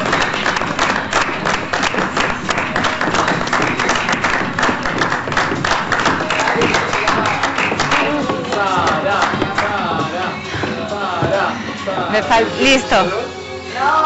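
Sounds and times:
audience clapping: 0.0s - 9.8s.

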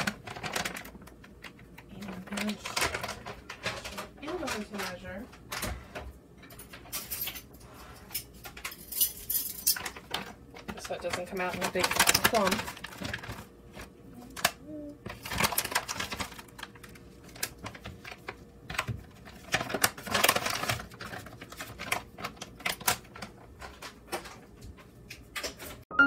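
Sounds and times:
plastic pouch crinkling: 10.9s - 14.5s, 15.1s - 23.8s.

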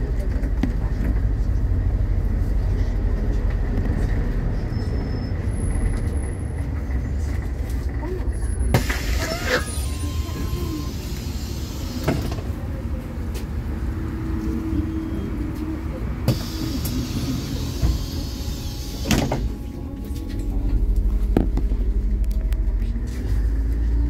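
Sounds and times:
bus diesel engine: 0.0s - 24.0s
bus doors hissing and clunking: 8.7s - 12.8s, 16.2s - 20.6s
rising whine: 18.2s - 24.0s.

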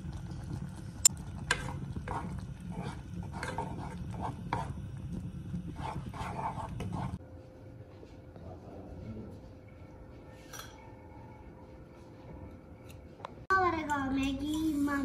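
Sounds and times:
spatula stirring and scraping pot: 0.2s - 7.2s.

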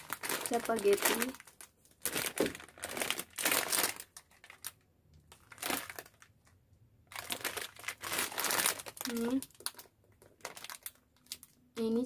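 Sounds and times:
plastic packets crinkling: 0.0s - 12.0s.

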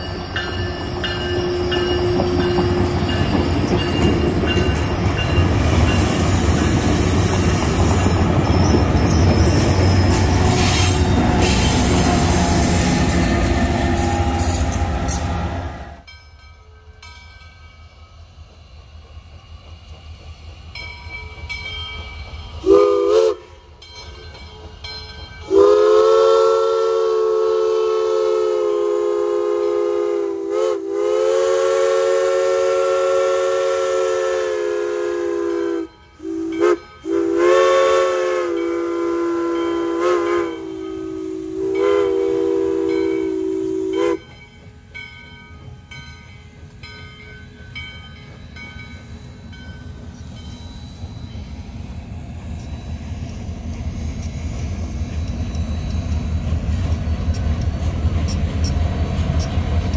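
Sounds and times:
train rumbling past: 0.0s - 59.9s
steam locomotive whistle blasts: 5.9s - 16.1s, 22.6s - 23.6s, 25.4s - 44.3s.

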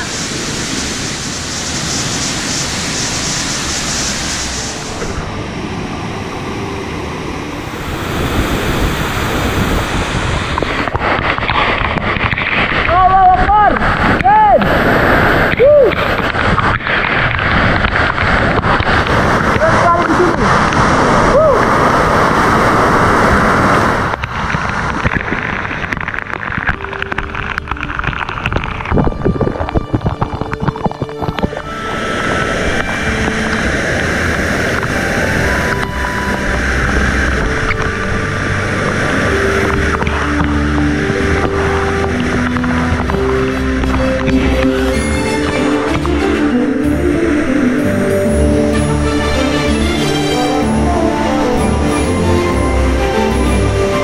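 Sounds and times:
rocky stream rushing: 0.0s - 54.0s
waterfall pouring: 0.0s - 54.0s
drops pattering on microphone: 24.2s - 31.7s.

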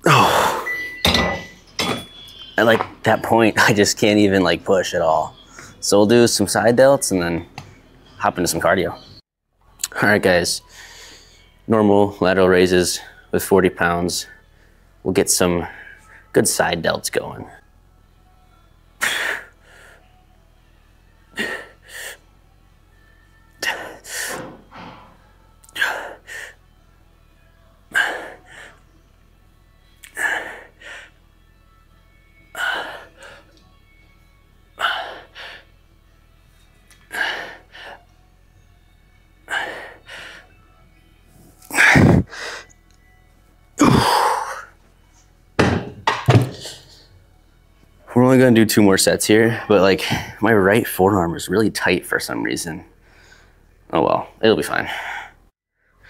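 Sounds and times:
sharp forced breaths: 30.1s - 31.2s.

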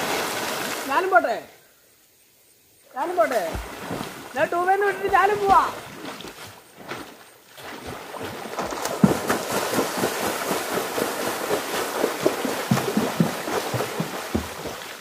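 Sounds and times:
water splashing from kicking: 3.3s - 15.0s.

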